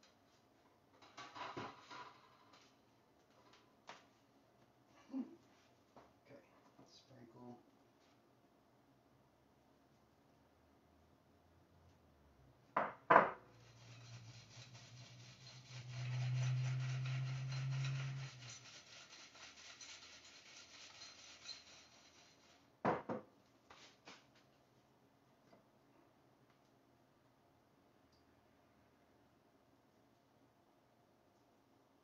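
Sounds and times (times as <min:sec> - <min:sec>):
fries rattling in a bowl: 0:13.5 - 0:22.7.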